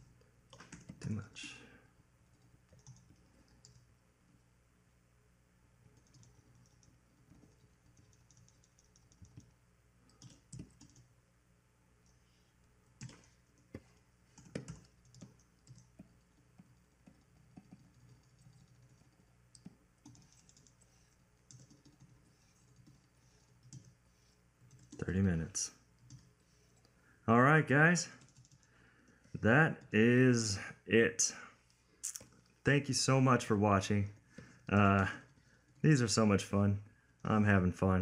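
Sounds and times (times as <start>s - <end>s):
low steady hum: 0.0s - 38.0s
keyboard and mouse clicking: 0.5s - 1.1s, 2.3s - 3.9s, 6.0s - 11.1s, 13.0s - 25.0s.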